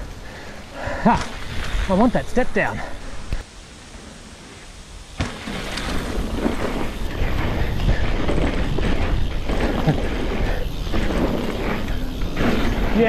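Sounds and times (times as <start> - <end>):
bike tyres crunching over stones: 5.2 - 13.0
wind buffeting microphone: 5.6 - 13.0.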